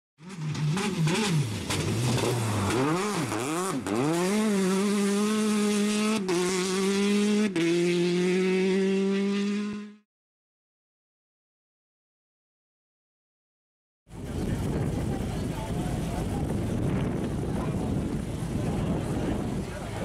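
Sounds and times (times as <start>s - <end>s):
racing car engine revving: 0.2s - 10.0s.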